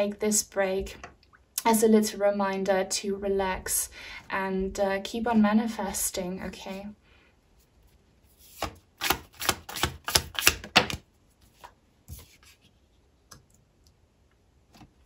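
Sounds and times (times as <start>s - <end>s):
cards slapping and tapping: 8.5s - 11.1s.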